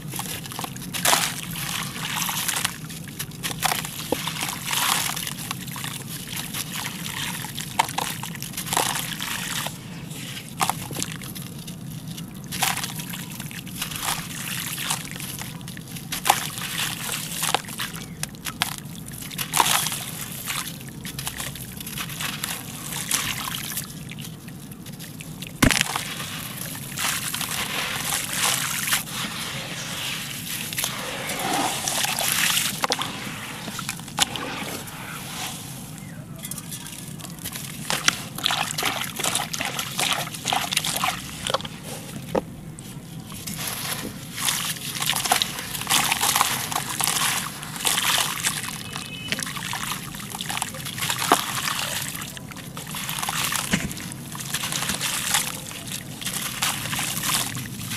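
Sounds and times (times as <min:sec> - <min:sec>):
water sloshing and dribbling: 0:00.0 - 0:57.9
wet concrete crunching: 0:00.0 - 0:57.9
pieces splashing into water: 0:25.5 - 0:27.7.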